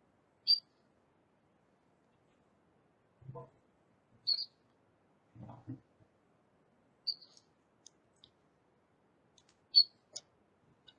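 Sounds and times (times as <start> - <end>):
computer mouse clicks: 9.4 - 9.6.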